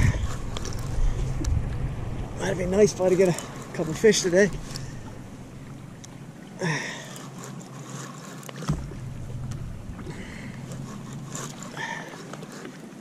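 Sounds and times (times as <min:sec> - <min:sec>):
wind on microphone: 0:00.0 - 0:06.5, 0:08.7 - 0:11.9
water lapping against kayak hull: 0:00.0 - 0:13.0.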